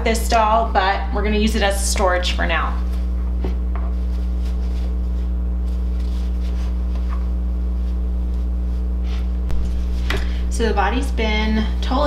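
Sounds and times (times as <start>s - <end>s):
low electrical hum: 0.0s - 12.0s
stuffing rustling: 2.9s - 10.4s.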